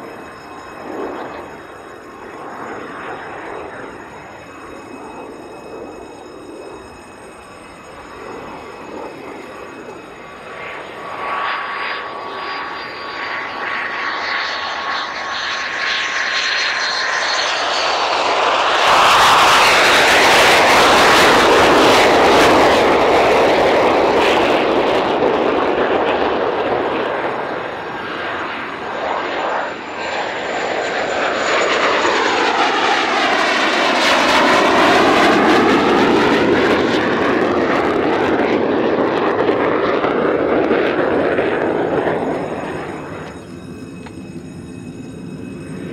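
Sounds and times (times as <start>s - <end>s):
jet engine low pass: 0.0s - 45.9s.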